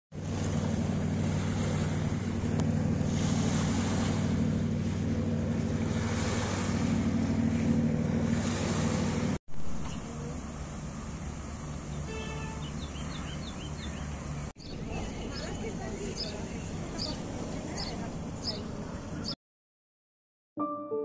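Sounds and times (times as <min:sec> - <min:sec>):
motorboat engine drone: 0:00.1 - 0:19.4
waves lapping on pebbly shore: 0:00.2 - 0:09.4.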